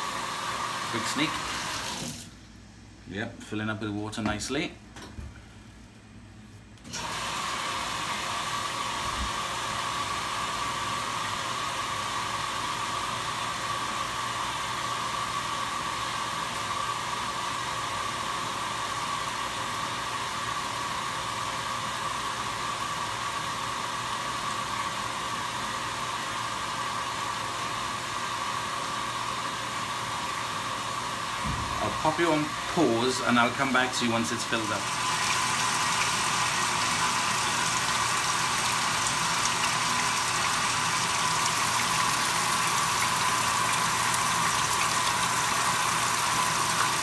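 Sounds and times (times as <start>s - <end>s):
water pouring into washing machine: 0.0s - 2.4s, 6.9s - 16.8s, 29.8s - 47.0s.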